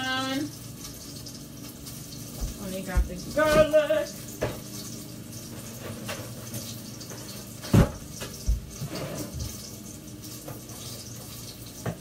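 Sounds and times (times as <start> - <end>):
peppers sizzling in oil: 0.0 - 12.0
kitchen knocks and thumps: 2.3 - 3.8, 4.4 - 4.7, 7.6 - 9.6.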